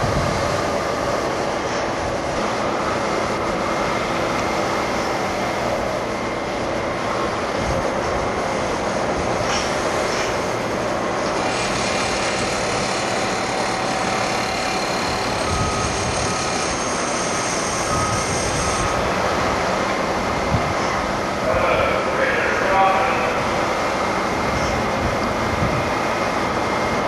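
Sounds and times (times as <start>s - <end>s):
machinery running: 0.0s - 27.0s.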